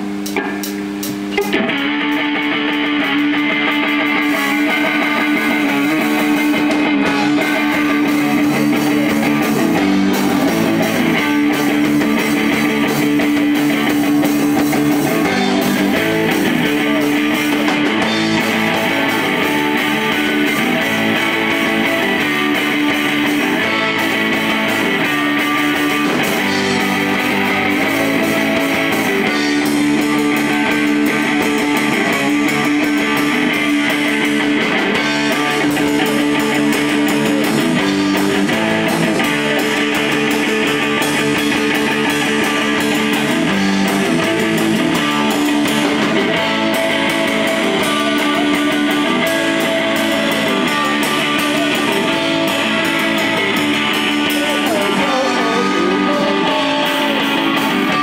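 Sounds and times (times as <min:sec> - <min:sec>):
distorted electric guitars: 0:00.0 - 0:58.0
hardcore band playing live: 0:00.0 - 0:58.0.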